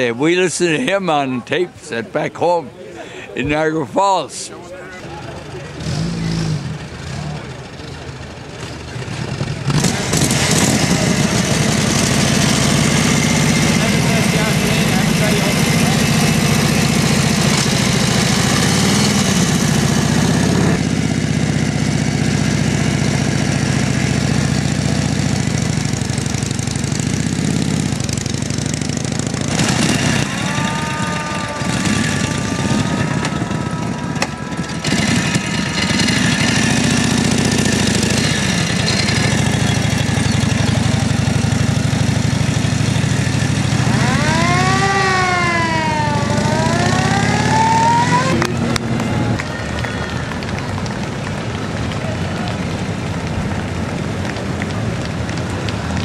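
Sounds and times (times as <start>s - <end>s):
military vehicle engines running: 4.2s - 56.0s
motorcycle idling and pulling away: 5.0s - 56.0s
rising and falling whine: 29.6s - 39.2s, 43.4s - 49.5s.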